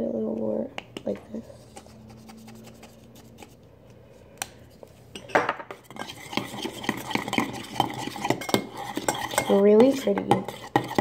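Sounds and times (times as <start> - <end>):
spoon stirring in metal bowl: 0.8 - 3.6, 5.1 - 11.0.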